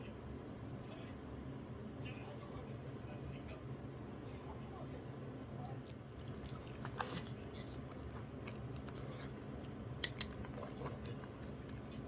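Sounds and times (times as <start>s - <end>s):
wet squishy chewing: 5.6s - 12.0s.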